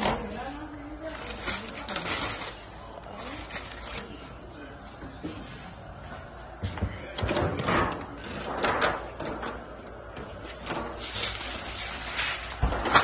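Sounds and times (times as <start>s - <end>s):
aluminium foil crinkling: 0.0s - 4.5s, 8.1s - 13.0s.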